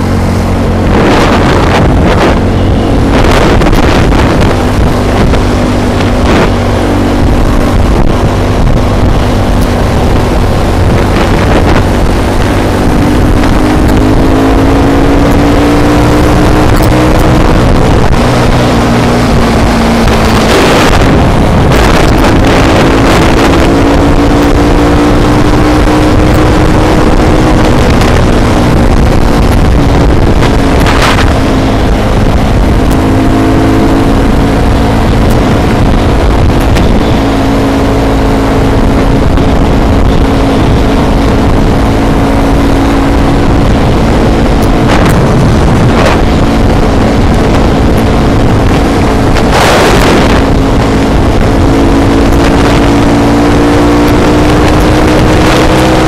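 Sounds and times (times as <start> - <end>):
quad bike engine: 0.0 - 56.0
wind rush on microphone: 0.0 - 56.0.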